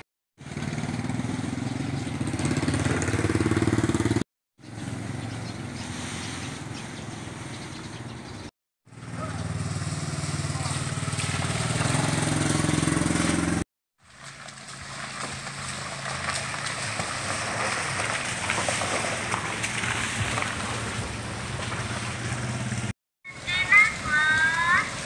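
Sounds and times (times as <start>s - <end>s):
small motorcycle engine: 0.0s - 6.4s, 8.9s - 13.7s, 14.3s - 25.0s
tyre noise on wet road: 0.0s - 7.6s, 8.9s - 25.0s
low vehicle engine hum: 0.0s - 25.0s
gravel crunching clicks: 14.0s - 22.5s.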